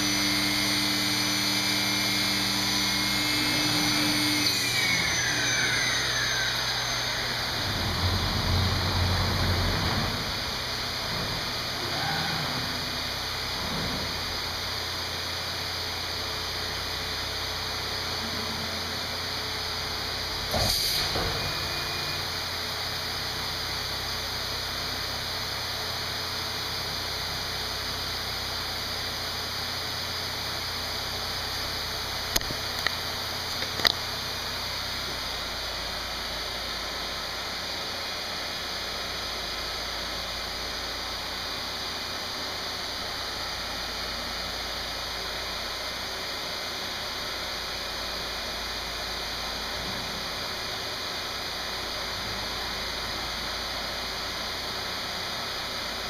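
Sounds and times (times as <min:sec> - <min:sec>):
machine hissing: 0:00.0 - 0:15.0, 0:18.2 - 0:22.6
low hum: 0:05.3 - 0:15.0
blast of air: 0:20.5 - 0:21.4.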